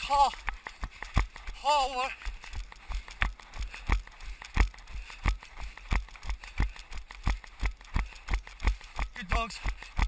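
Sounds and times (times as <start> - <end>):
running footsteps on tarmac: 0.0 - 10.0.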